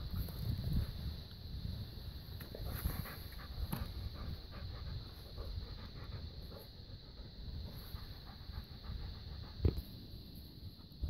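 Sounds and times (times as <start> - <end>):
dog panting: 2.9 - 9.8.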